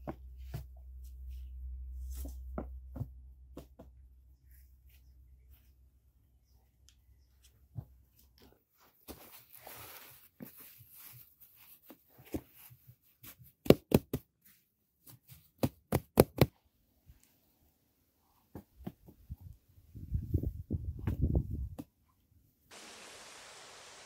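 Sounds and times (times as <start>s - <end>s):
rustling scrape of sod: 9.1s - 11.2s
hands tapping turf: 15.1s - 16.6s.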